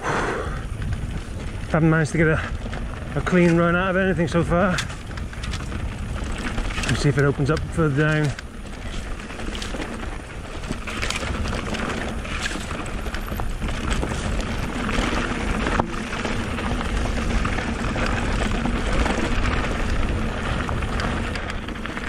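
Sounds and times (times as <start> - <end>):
bike rattling: 0.0 - 22.0
bike tyres on rough trail: 0.0 - 22.0.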